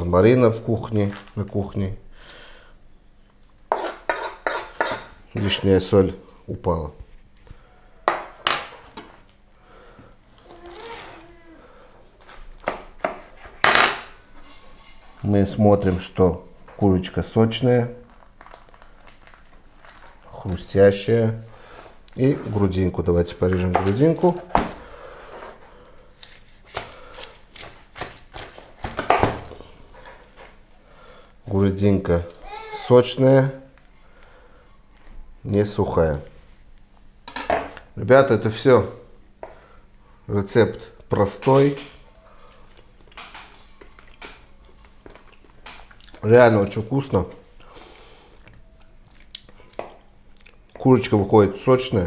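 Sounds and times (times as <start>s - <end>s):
knife carving crisp chicken skin: 12.1s - 13.6s.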